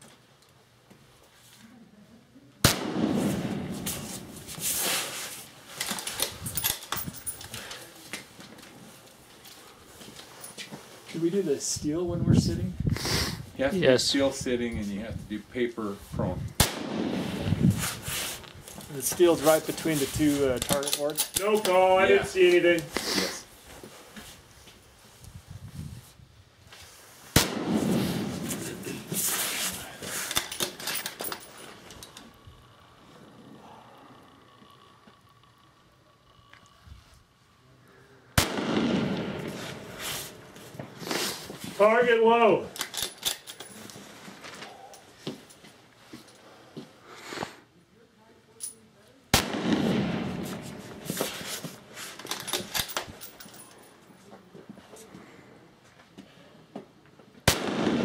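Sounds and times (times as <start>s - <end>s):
rifle shot: 2.6s - 4.4s, 16.6s - 17.6s, 27.3s - 28.9s, 38.4s - 40.0s, 49.3s - 51.0s, 57.4s - 58.0s
clothing and gear rustling: 3.7s - 11.6s, 17.6s - 27.3s, 28.2s - 32.2s, 39.5s - 41.9s.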